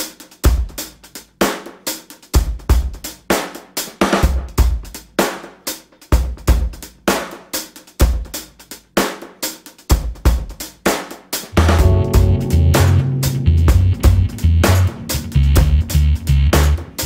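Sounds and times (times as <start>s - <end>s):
drum-kit beat: 0.0s - 17.0s
bass line: 11.6s - 17.0s
sustained chords: 11.6s - 17.0s.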